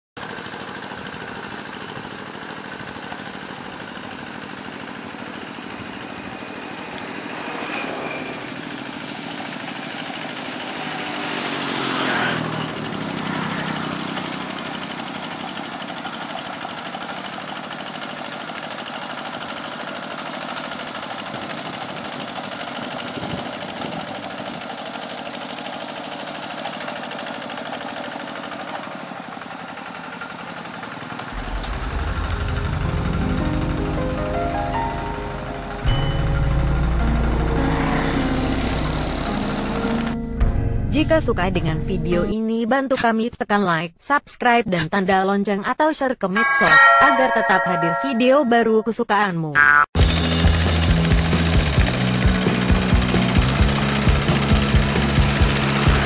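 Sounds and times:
small engine running: 0:00.2 - 0:40.2, 0:50.0 - 0:56.0
vehicle passing by: 0:06.3 - 0:15.5, 0:31.3 - 0:35.9, 0:36.7 - 0:40.2, 0:55.1 - 0:56.0.

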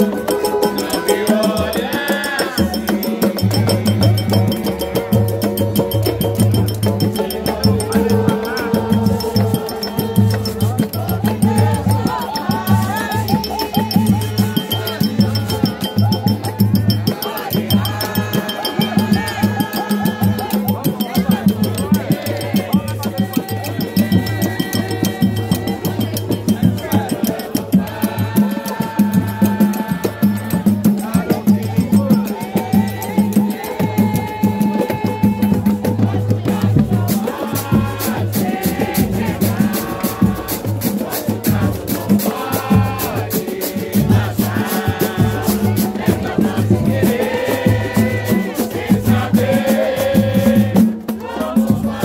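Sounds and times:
group of voices singing: 0:00.0 - 0:52.0
samba hand percussion: 0:00.0 - 0:52.0.

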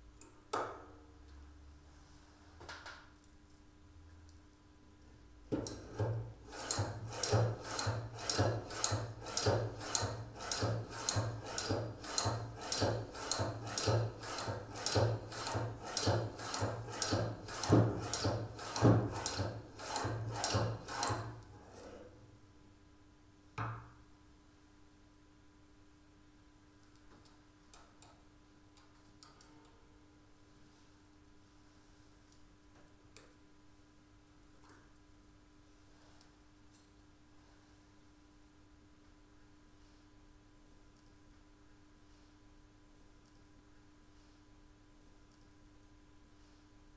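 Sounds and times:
blade rasping over cane: 0:05.9 - 0:22.1
single knock: 0:23.6 - 0:23.9.

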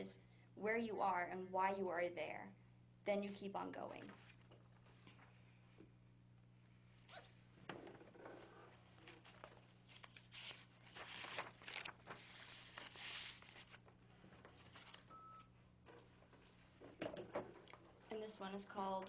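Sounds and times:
paper rustling: 0:08.7 - 0:15.1.

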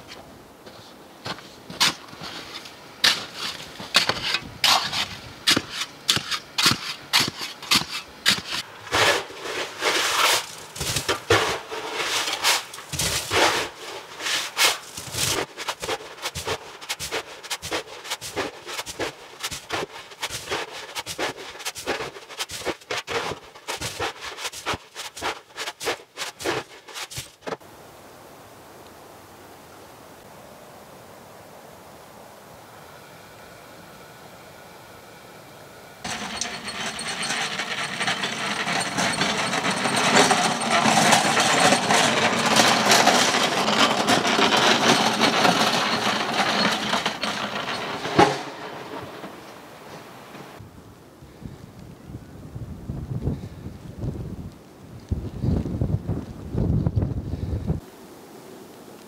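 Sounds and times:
shovel chopping snow and ice: 0:01.3 - 0:27.6.

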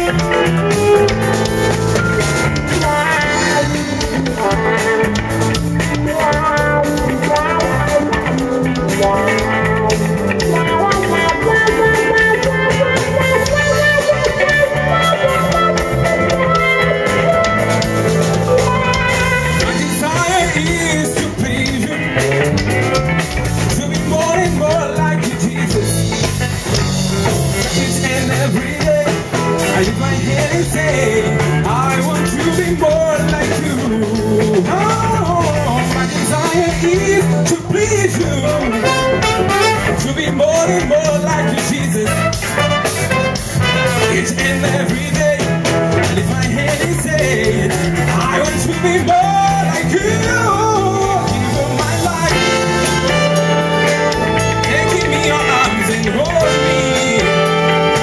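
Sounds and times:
horn section playing: 0:00.0 - 0:21.1, 0:38.4 - 0:40.6, 0:42.0 - 0:44.9, 0:51.8 - 0:58.0
person singing: 0:00.0 - 0:26.6, 0:27.6 - 0:58.0
electric guitar: 0:00.0 - 0:58.0
keyboards: 0:00.0 - 0:58.0
steady bass line: 0:00.0 - 0:58.0.

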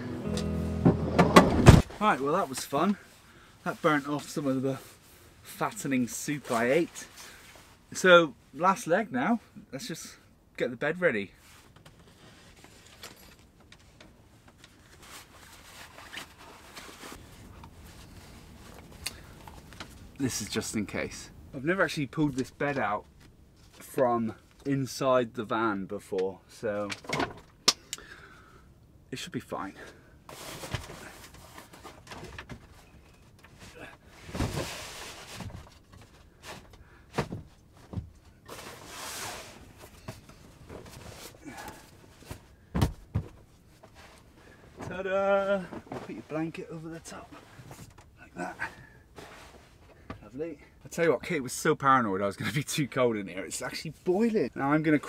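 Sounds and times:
wooden knocks and thumps: 0:00.8 - 0:01.9, 0:42.7 - 0:43.5.

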